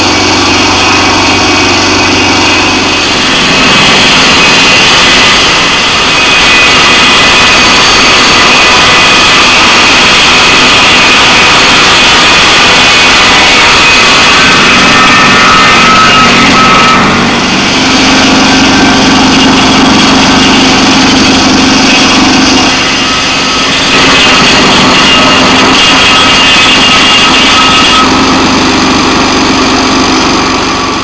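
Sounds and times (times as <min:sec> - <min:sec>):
saw blade spinning: 0:00.0 - 0:31.0
sawmill engine running: 0:00.0 - 0:31.0.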